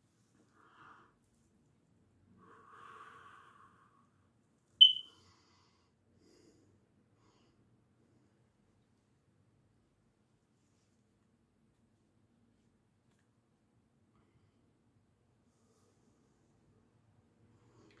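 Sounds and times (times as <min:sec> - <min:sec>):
sharp high-pitched squeak: 0:04.8 - 0:05.1.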